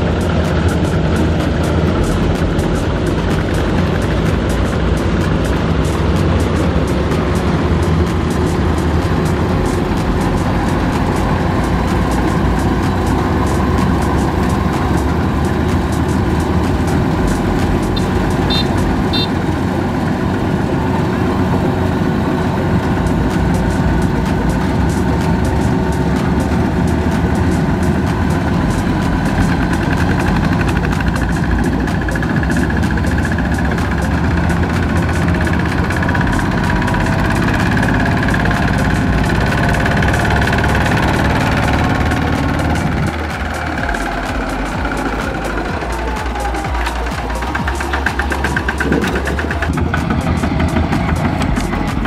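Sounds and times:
diesel engines running: 0.0s - 52.0s.

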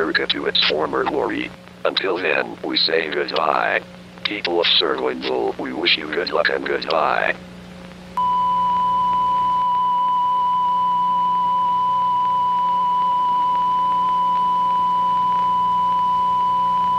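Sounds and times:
faint low hum: 0.0s - 16.9s
steady high test tone beep: 8.2s - 16.9s.

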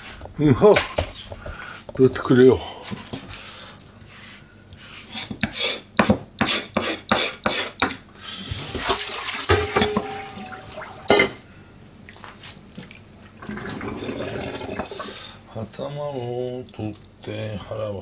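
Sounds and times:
metal bowl clanking: 9.4s - 11.4s
tap water running into sink: 12.8s - 15.2s.

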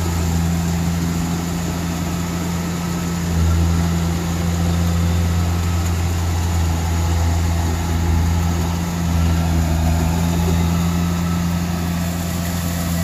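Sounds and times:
large diesel engine running: 0.0s - 13.0s.

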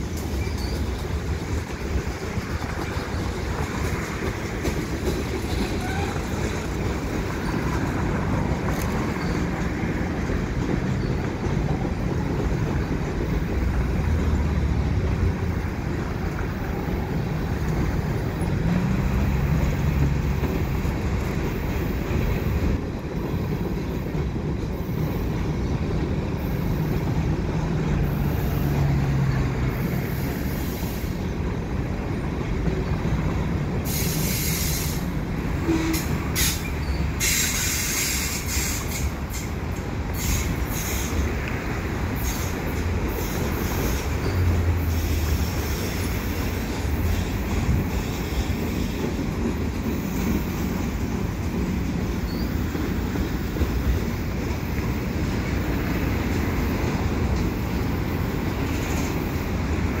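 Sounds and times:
train wheels rumbling on rails: 0.0s - 60.0s
wheels screeching: 33.0s - 51.2s.

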